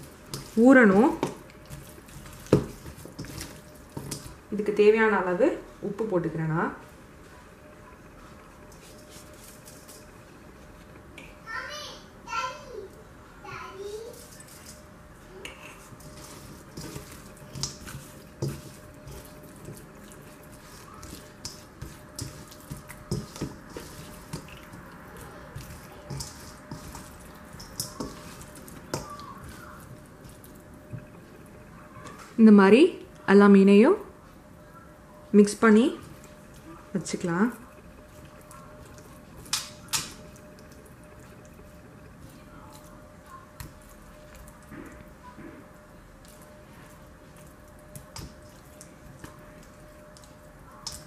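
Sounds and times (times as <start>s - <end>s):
hand squishing fish in marinade: 16.0s - 30.7s.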